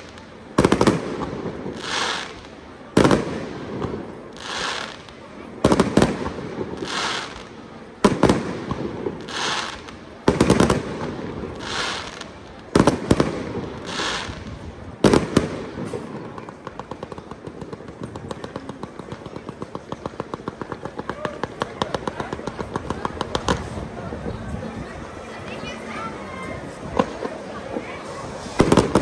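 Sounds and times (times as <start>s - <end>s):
firework hiss: 0.0s - 5.2s, 5.8s - 7.7s, 8.3s - 16.5s, 28.0s - 29.0s
firework shells bursting with crackle: 28.4s - 29.0s.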